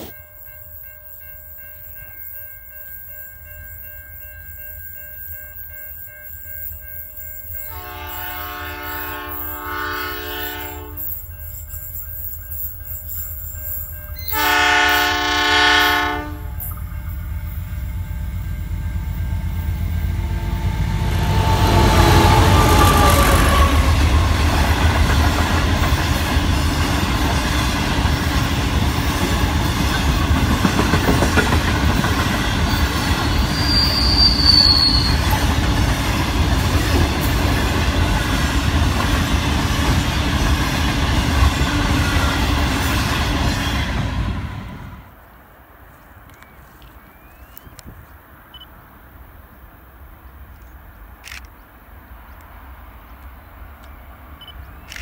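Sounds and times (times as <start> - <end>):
train horn blasts: 7.7 - 11.2, 14.2 - 24.4
locomotives passing: 16.4 - 47.4
wheels clattering on rail: 16.6 - 44.3
high wheel squeal: 32.6 - 35.5.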